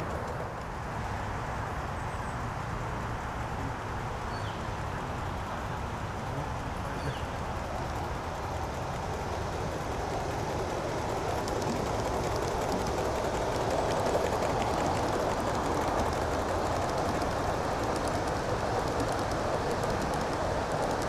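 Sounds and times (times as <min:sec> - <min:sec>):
steam locomotive passing: 0:00.0 - 0:21.0
rushing hiss and rapid ticking: 0:04.1 - 0:21.0.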